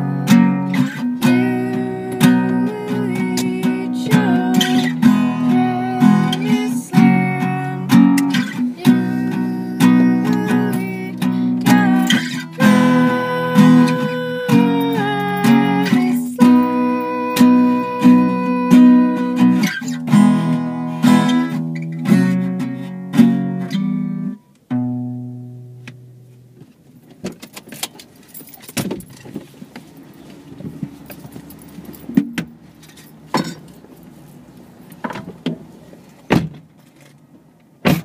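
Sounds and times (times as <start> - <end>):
strummed acoustic guitar chords: 0.0 - 26.6.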